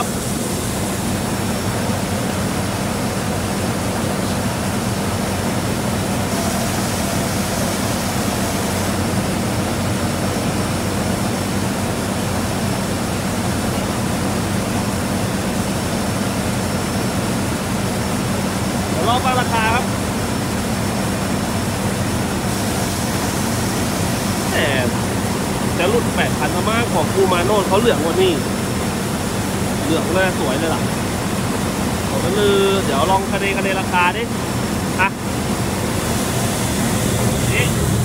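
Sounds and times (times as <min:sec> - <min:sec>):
combine harvester engine humming: 0:00.0 - 0:38.0.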